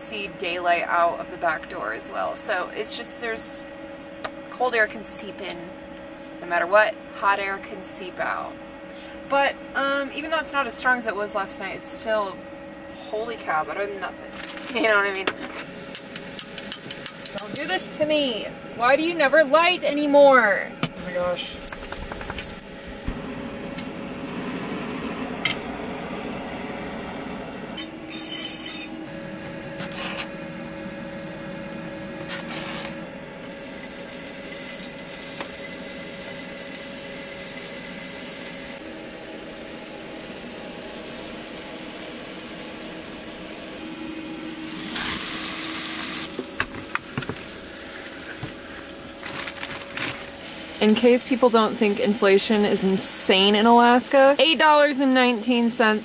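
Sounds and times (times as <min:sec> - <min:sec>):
chicken sizzling in a frying pan: 0:33.5 - 0:56.0.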